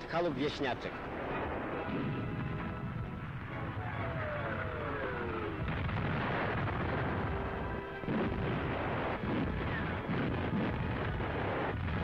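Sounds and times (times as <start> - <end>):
field gun shots: 5.6 - 12.0.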